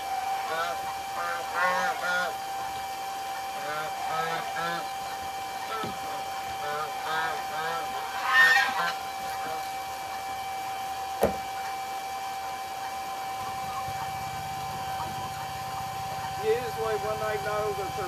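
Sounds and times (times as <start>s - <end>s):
electric pump humming: 0.0s - 18.0s
low pulsing drone: 0.0s - 18.0s
goose honking: 0.4s - 2.5s, 3.5s - 9.8s.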